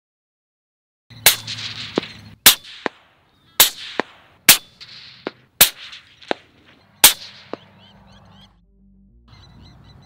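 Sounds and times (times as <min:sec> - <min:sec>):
fainter gunshot cracks: 0:01.2 - 0:07.8
rifle shots: 0:01.2 - 0:07.9.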